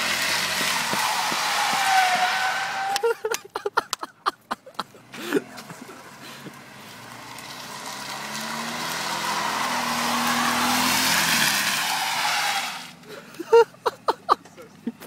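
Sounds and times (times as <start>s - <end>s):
trays scraping on pavement: 0.0s - 3.4s
car engine running: 0.0s - 15.0s.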